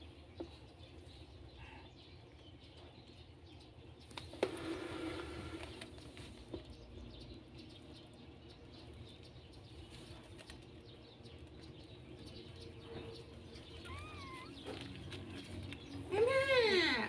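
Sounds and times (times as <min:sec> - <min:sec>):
kitten squeak: 0:13.8 - 0:14.7.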